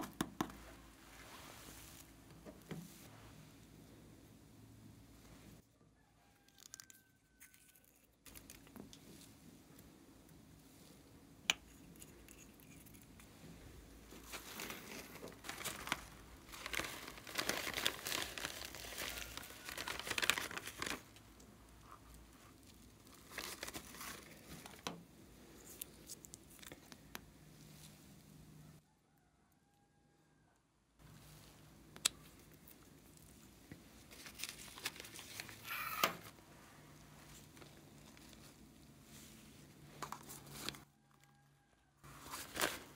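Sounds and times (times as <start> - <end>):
crinkling rustling handling noise: 12.1 - 28.3, 32.3 - 40.9, 42.1 - 42.9.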